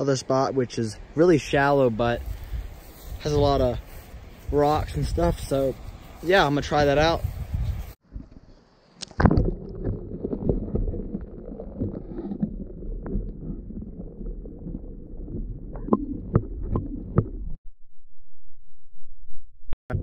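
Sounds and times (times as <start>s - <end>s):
sharp underwater clicks and knocks: 9.0s - 13.8s, 15.7s - 17.6s
muffled underwater stream rumble: 9.2s - 17.6s.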